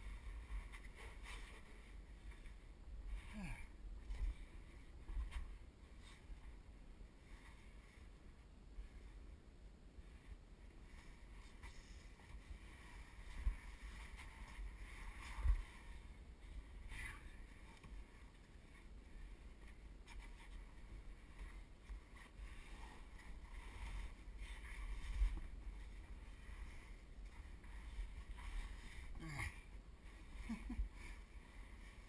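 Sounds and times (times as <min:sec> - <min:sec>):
clothing scraping against rock: 0:10.9 - 0:32.0.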